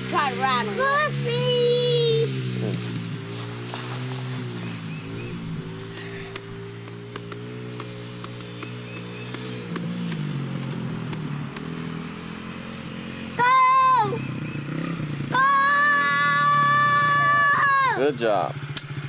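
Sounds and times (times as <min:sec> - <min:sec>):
dirt bike engine running: 0:00.0 - 0:19.0
person shouting cheers: 0:15.3 - 0:18.0.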